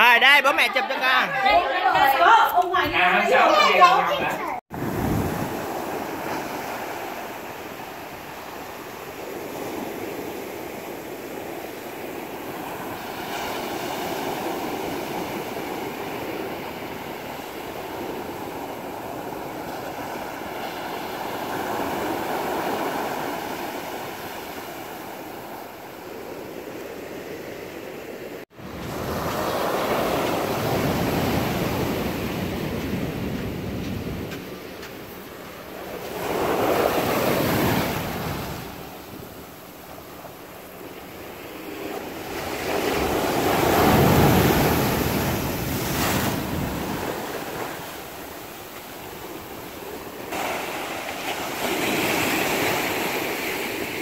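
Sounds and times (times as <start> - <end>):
waves washing over rocks: 50.1 - 54.0.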